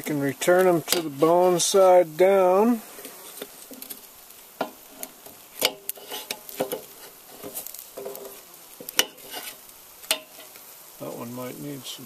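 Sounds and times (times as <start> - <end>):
meat sizzling: 0.0 - 12.0
metal tongs clicking on grill: 3.4 - 10.6.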